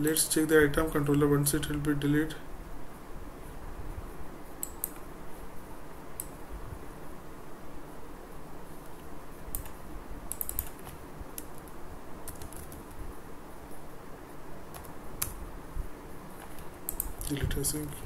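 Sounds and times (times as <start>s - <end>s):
faint background hiss: 0.0s - 18.0s
keyboard keys clicking: 8.8s - 13.0s, 16.4s - 17.4s.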